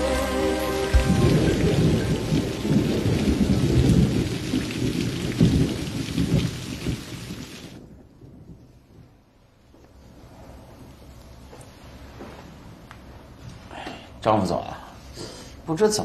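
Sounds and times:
rain: 0.0s - 15.1s
rumbling thunder: 1.0s - 9.1s.

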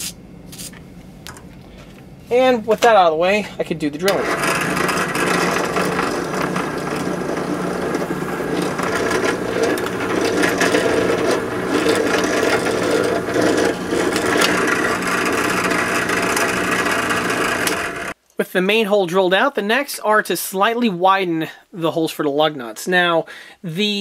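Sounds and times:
drill bit cutting plastic: 4.1s - 18.2s
drill press motor hum: 4.1s - 18.2s.

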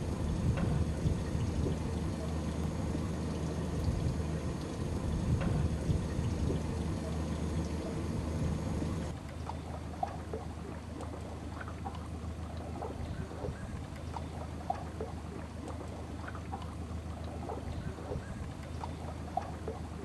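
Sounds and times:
boat motor humming: 0.0s - 20.0s
water plops and lapping: 0.0s - 20.0s.

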